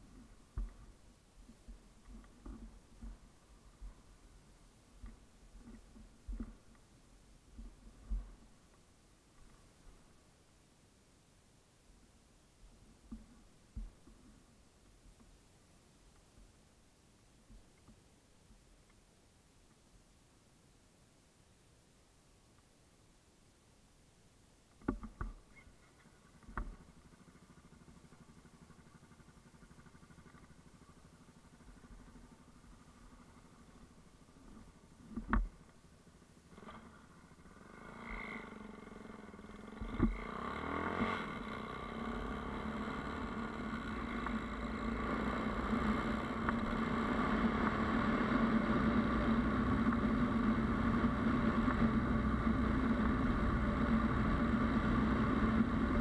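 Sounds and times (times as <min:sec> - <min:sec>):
motorcycle engine running: 0:26.0 - 0:56.0.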